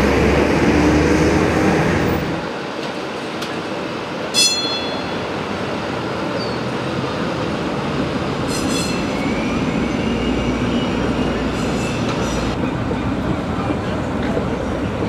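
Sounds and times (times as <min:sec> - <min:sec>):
streetcar rumbling on rails: 0:00.0 - 0:15.0.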